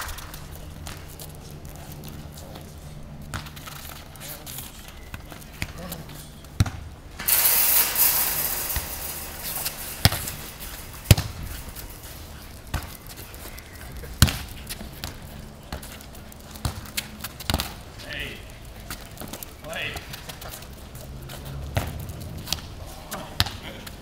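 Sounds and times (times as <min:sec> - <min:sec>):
football bouncing on tarmac: 0:00.2 - 0:01.3, 0:03.2 - 0:04.1, 0:05.0 - 0:07.3, 0:12.6 - 0:18.0, 0:18.9 - 0:24.0
loud rushing noise: 0:07.1 - 0:12.4.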